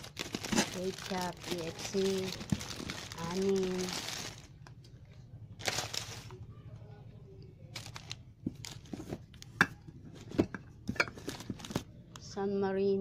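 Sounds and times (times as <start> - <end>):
plastic packets crinkling: 0.0 - 4.8, 5.6 - 6.4, 7.7 - 9.6, 11.0 - 11.9.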